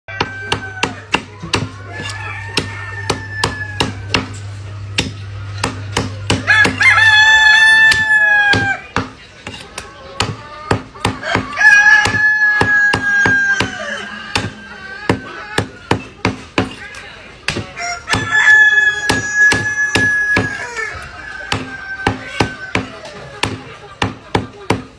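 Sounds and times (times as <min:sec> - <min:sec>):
cleaver chopping on wooden block: 0:00.2 - 0:04.3, 0:05.0 - 0:06.8, 0:17.5 - 0:18.3
rooster crowing: 0:01.8 - 0:04.1, 0:06.4 - 0:08.9, 0:11.2 - 0:15.4, 0:17.8 - 0:23.1.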